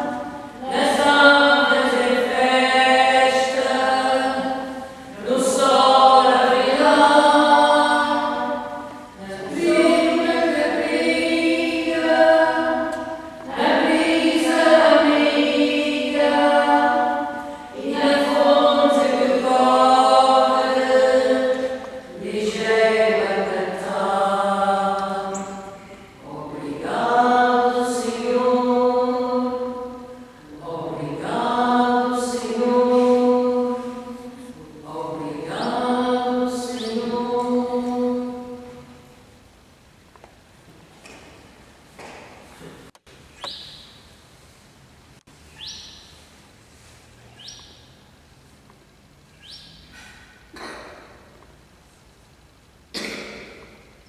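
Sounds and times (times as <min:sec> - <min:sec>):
voices chanting unaccompanied: 0:00.0 - 0:39.0.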